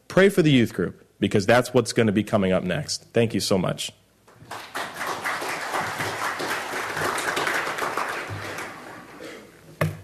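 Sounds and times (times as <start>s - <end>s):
crowd applauding: 4.4s - 9.5s.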